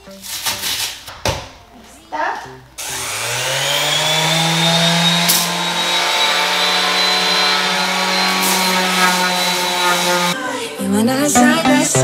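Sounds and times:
electric sander running: 0:02.8 - 0:10.4.

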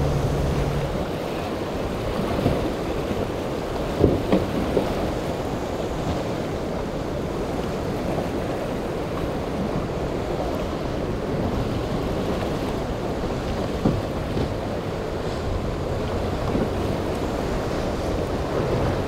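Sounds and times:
wind on microphone: 0:00.0 - 0:08.6
choppy water and surf: 0:00.0 - 0:19.0.

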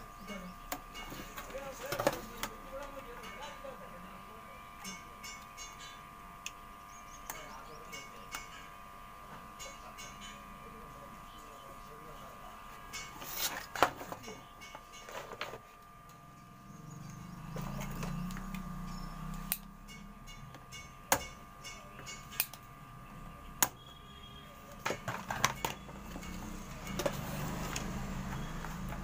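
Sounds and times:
faint steady whine: 0:00.0 - 0:29.0
soldering iron and tools tapping: 0:17.6 - 0:22.7.

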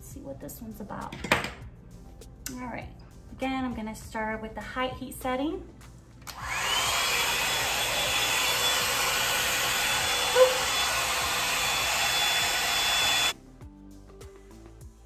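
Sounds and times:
hot-air brush dryer running: 0:06.3 - 0:13.4.

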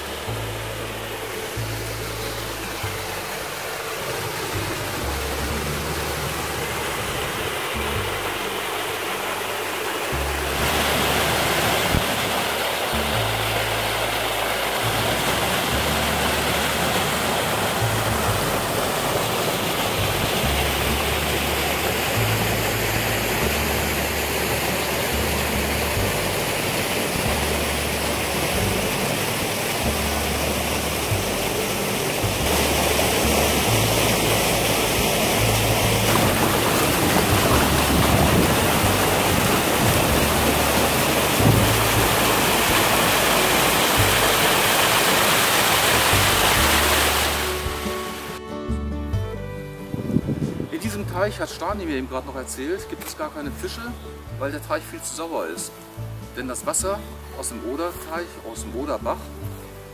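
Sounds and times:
music with slow bass line: 0:00.0 - 0:59.9
rushing waterfall: 0:00.0 - 0:59.9.

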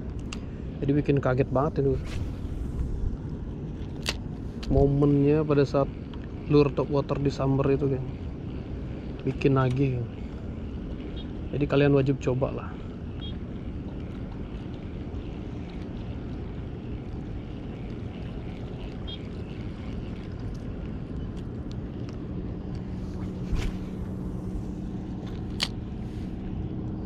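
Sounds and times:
faint engine hum: 0:00.0 - 0:27.0
wind and water rumble: 0:00.0 - 0:27.0.

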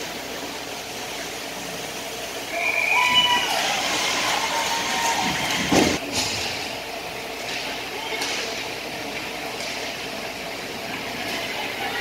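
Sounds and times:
arena noise: 0:02.4 - 0:12.0
spectators' voices: 0:10.7 - 0:12.0.

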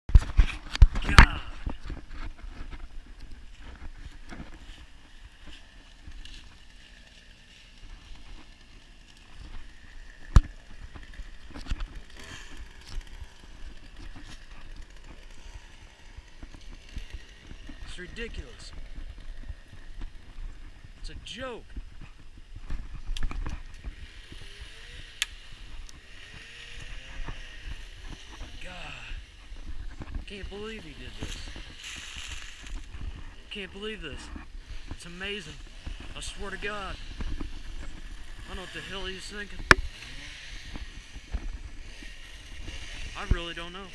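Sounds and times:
footsteps through grass and leaves: 0:00.1 - 0:43.9.

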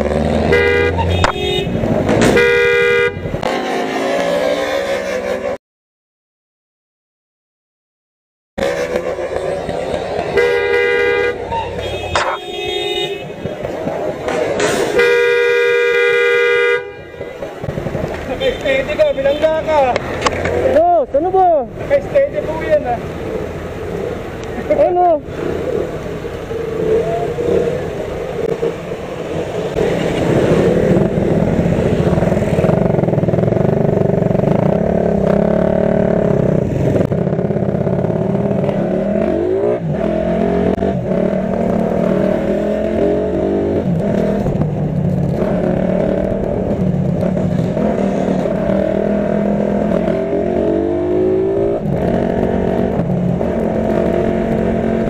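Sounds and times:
motorcycle engine revving: 0:00.0 - 0:05.6, 0:17.2 - 0:55.0.

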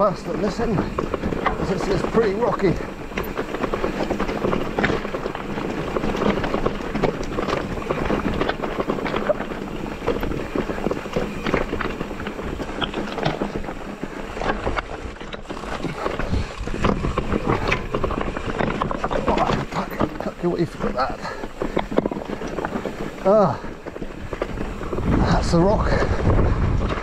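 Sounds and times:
bike rattling over rocks: 0:00.0 - 0:27.0.

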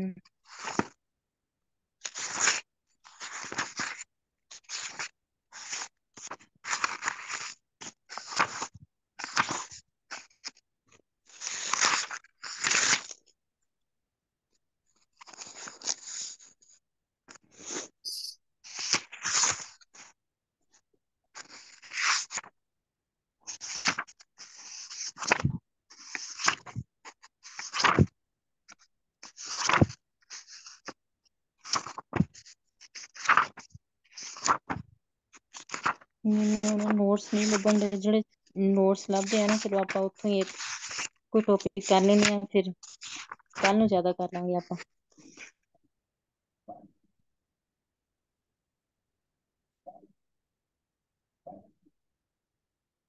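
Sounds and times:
crackling rustling noise: 0:00.4 - 0:01.0, 0:02.0 - 0:10.6, 0:11.3 - 0:13.2, 0:15.0 - 0:17.9, 0:18.6 - 0:20.2, 0:23.5 - 0:28.1, 0:28.7 - 0:31.0, 0:31.6 - 0:45.6.

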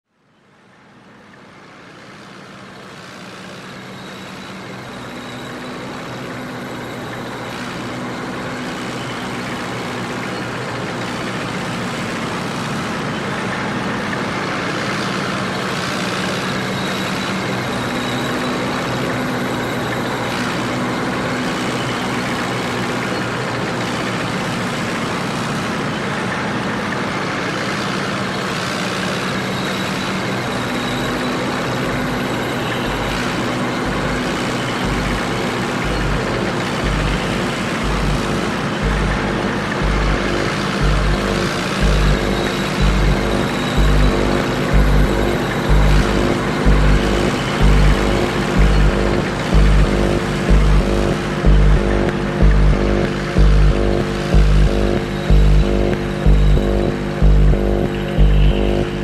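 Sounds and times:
road traffic engines humming: 0:00.2 - 0:59.0
low regular thump: 0:33.9 - 0:59.0.

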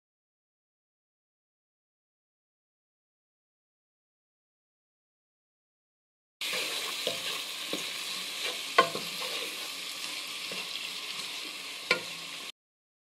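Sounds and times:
wooden spoon stirring: 0:06.4 - 0:12.2
onions sizzling in oil: 0:06.4 - 0:12.6
spoon knocking against pan: 0:07.1 - 0:09.4, 0:11.9 - 0:12.2.

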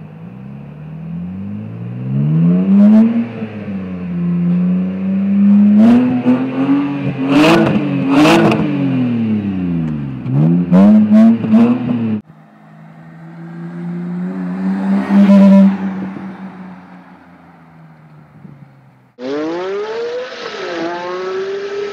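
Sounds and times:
car engine revving: 0:00.2 - 0:21.9
car driving past: 0:11.1 - 0:21.9.

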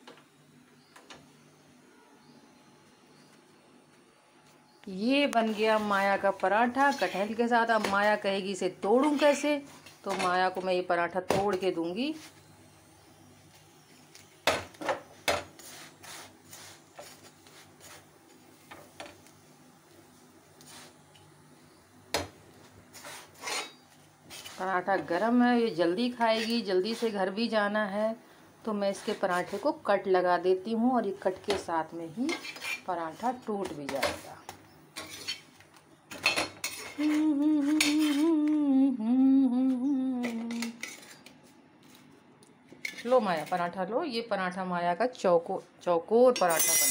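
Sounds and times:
scraping on a griddle pan: 0:06.6 - 0:08.2, 0:08.9 - 0:10.3, 0:15.6 - 0:18.4, 0:22.9 - 0:24.6, 0:26.0 - 0:27.3, 0:28.9 - 0:29.8, 0:32.2 - 0:33.4, 0:35.0 - 0:35.6, 0:36.6 - 0:38.3
woman humming: 0:37.0 - 0:40.8.

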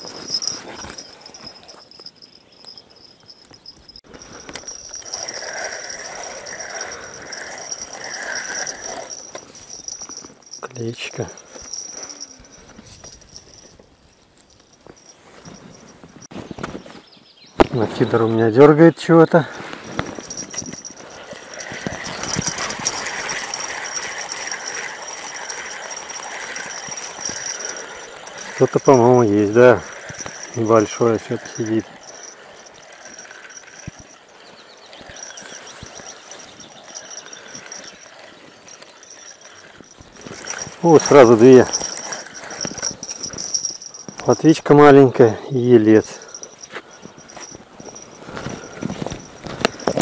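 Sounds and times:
fishing reel whirring: 0:00.0 - 0:13.8, 0:19.9 - 0:44.6, 0:46.1 - 0:50.0
thin high whine: 0:00.0 - 0:13.8.

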